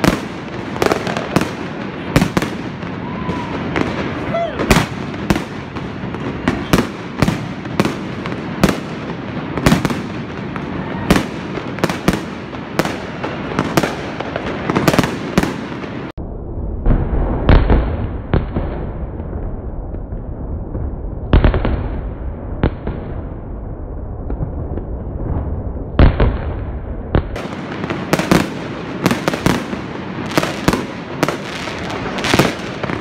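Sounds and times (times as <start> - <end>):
fireworks bangs: 0.0 - 33.0
fireworks crackle: 0.0 - 33.0
low rumble: 16.2 - 27.1.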